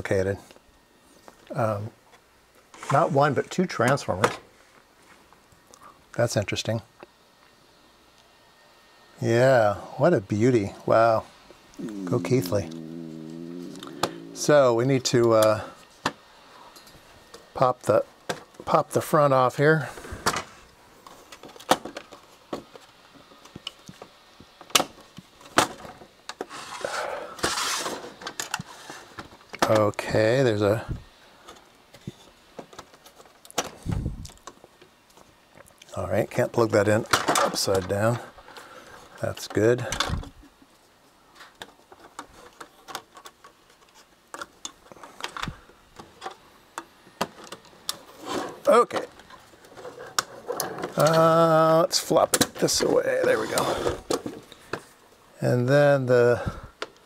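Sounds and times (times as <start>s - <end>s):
rustling scrape: 26.5s - 28.1s, 48.1s - 48.7s, 53.2s - 54.1s.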